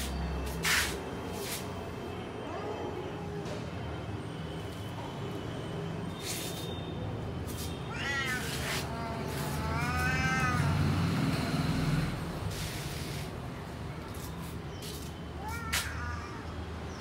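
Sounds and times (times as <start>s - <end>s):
cat meowing: 2.4s - 3.4s, 7.9s - 11.0s, 15.4s - 16.6s.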